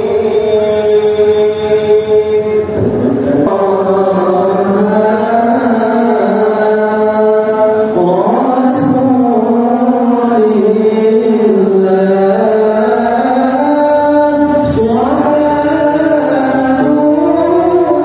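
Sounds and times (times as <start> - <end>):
man reciting melodically: 0.0 - 18.0.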